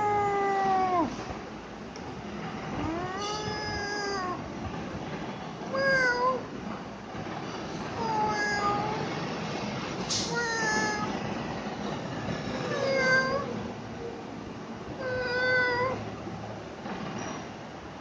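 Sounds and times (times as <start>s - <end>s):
cat meowing: 0.0s - 1.2s, 2.8s - 4.5s, 5.7s - 6.5s, 8.0s - 9.1s, 10.2s - 11.2s, 12.6s - 13.6s, 15.0s - 16.1s.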